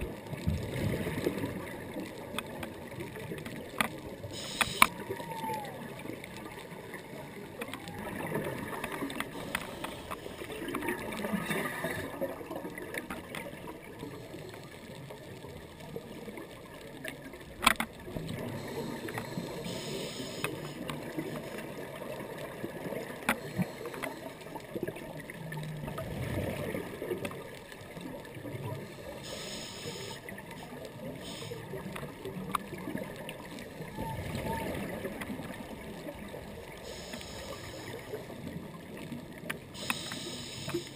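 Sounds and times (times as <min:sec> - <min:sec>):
sharp underwater clicks: 0:02.0 - 0:05.5, 0:07.5 - 0:11.9, 0:17.0 - 0:21.7, 0:23.2 - 0:24.8, 0:29.4 - 0:33.2, 0:39.4 - 0:40.9
underwater breathing bubbles: 0:04.2 - 0:05.0, 0:07.1 - 0:12.6, 0:18.3 - 0:22.0, 0:23.3 - 0:27.2, 0:28.6 - 0:32.0, 0:36.7 - 0:38.6, 0:39.6 - 0:40.9.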